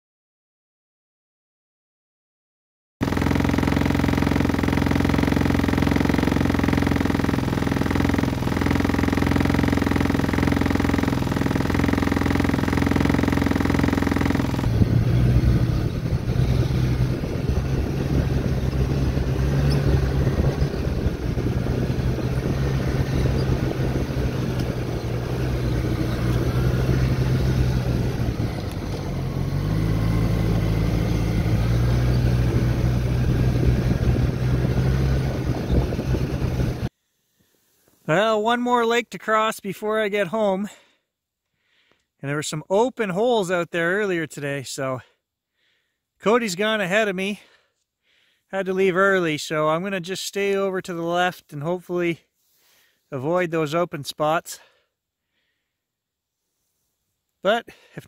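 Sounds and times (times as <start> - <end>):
snowmobile engine running: 3.0 - 36.9.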